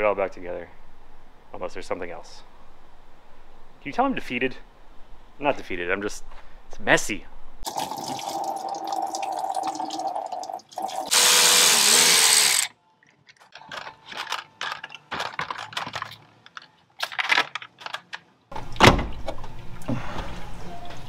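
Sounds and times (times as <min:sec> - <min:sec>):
electric ratchet whining: 0:11.1 - 0:12.7
clicks and clatter of plastic and metal: 0:13.0 - 0:18.4.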